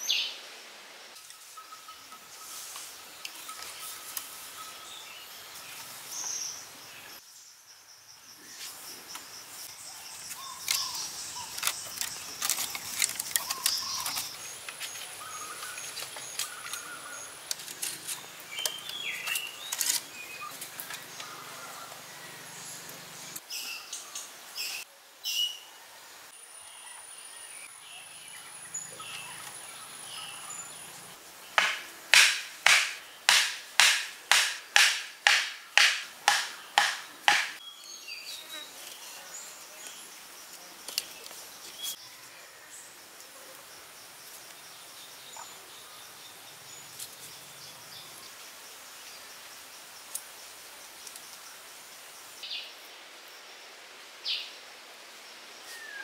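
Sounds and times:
birds chirping: 1.3s - 25.4s, 26.8s - 40.2s.

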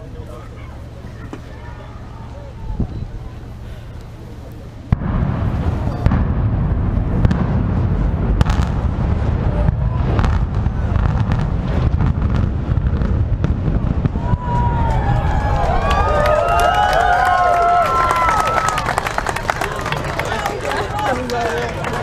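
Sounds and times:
heavy low rumble: 0.0s - 22.0s
crackling booms: 2.7s - 16.4s
demolition charges blast: 4.8s - 16.4s.

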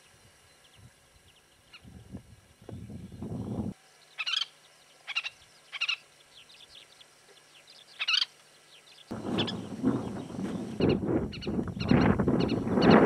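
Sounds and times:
faint bird chirps: 0.0s - 13.0s
wind rumble on microphone: 0.2s - 3.8s, 9.1s - 13.0s
birds calling harshly: 0.5s - 13.0s.

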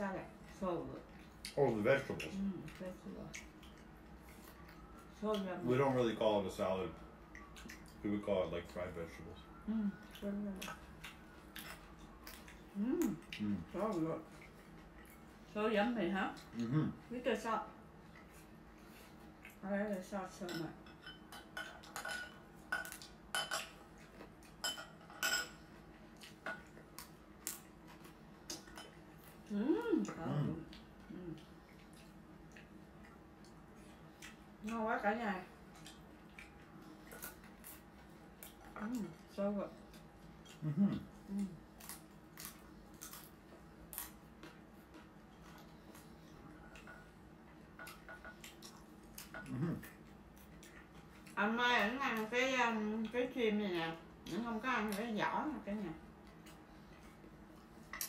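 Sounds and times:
crispy noodles being chewed: 1.1s - 15.5s, 35.6s - 51.4s
chopsticks clinking on ceramic plates: 20.4s - 23.8s, 24.6s - 25.6s.

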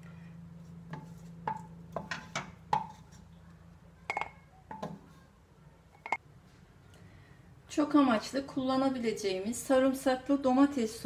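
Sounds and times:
spoon clinking on pot and jar: 4.1s - 4.4s.

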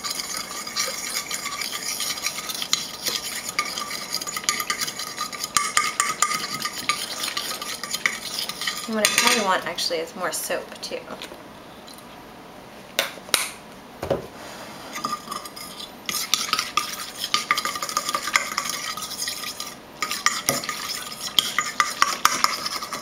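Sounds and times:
fork whisking in ceramic bowl: 0.0s - 9.6s, 14.9s - 23.0s.

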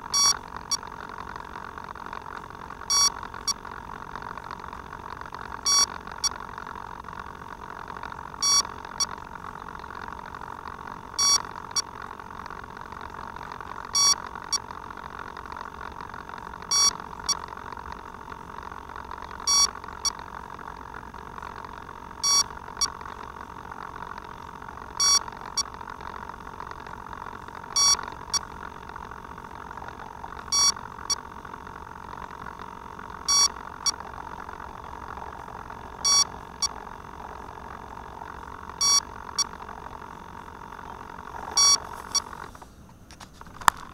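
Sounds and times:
electronic double beep: 2.9s - 3.2s, 11.2s - 11.4s, 27.8s - 28.0s, 33.3s - 34.0s, 36.0s - 36.7s, 38.8s - 39.5s, 41.6s - 42.3s.

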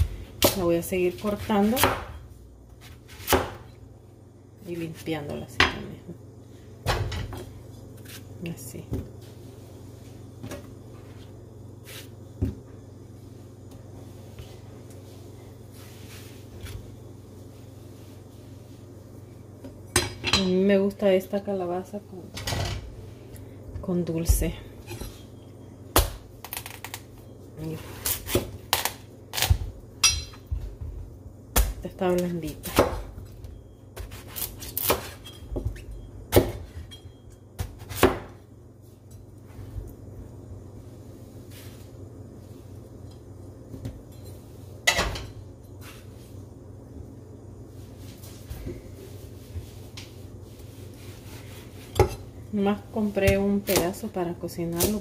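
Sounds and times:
knife chopping on wooden board: 1.7s - 2.2s, 37.6s - 38.3s
knife slicing squash: 34.0s - 35.2s.

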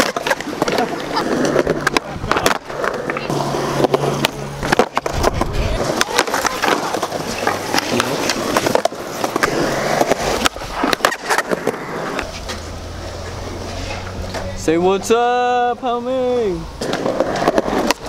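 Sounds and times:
skateboard clacks: 0.0s - 12.7s, 16.8s - 18.0s
skateboard wheels rolling on concrete: 0.0s - 18.0s.

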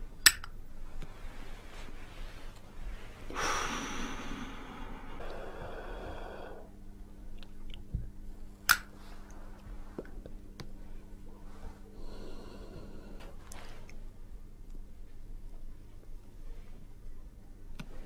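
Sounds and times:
steady low hum: 0.0s - 18.0s
breathy smoking exhale: 3.3s - 6.7s, 12.0s - 13.4s.

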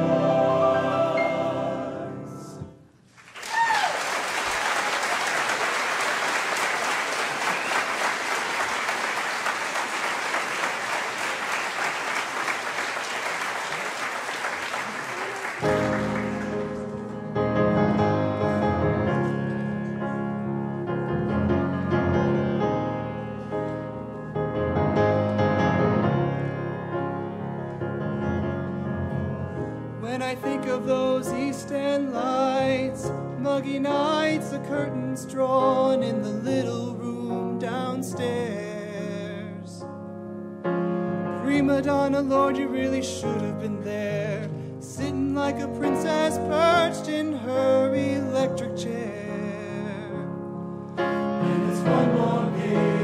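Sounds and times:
choir singing held chord: 0.0s - 2.8s, 51.1s - 53.0s
piano playing: 0.0s - 3.0s, 5.9s - 53.0s
audience applauding: 3.1s - 17.2s
audience cheer: 3.3s - 16.6s.

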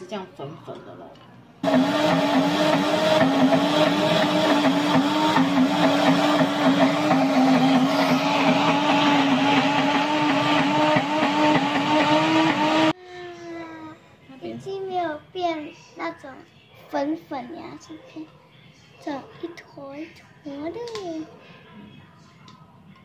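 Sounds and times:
blender motor grinding nuts: 1.6s - 12.9s.

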